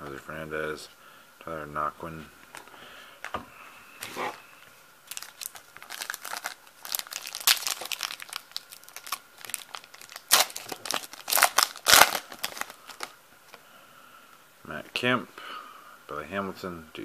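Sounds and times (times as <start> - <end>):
foil wrapper crinkling and tearing: 5.1 - 13.2.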